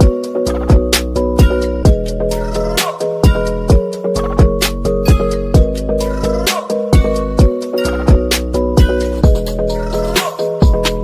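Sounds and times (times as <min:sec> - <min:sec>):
music with drum beat and chords: 0:00.0 - 0:11.0.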